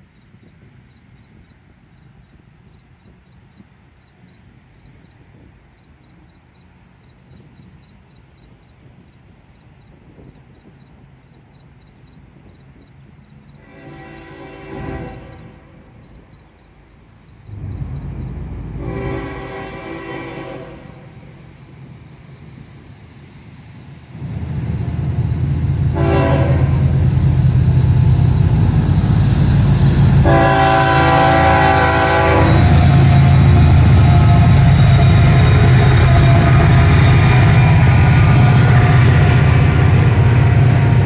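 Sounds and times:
locomotive engine rumble: 0.0 - 41.0
train horn blasts: 13.6 - 16.3, 17.5 - 21.5, 25.8 - 27.2, 29.8 - 41.0.

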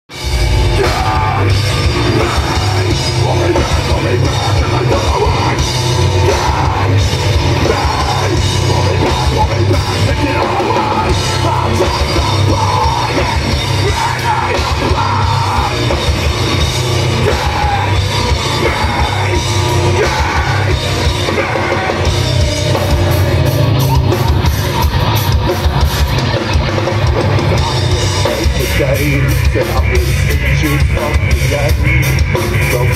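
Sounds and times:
live metal band playing: 0.1 - 32.9
vocalist yelling and singing: 0.4 - 25.7, 27.1 - 32.9.

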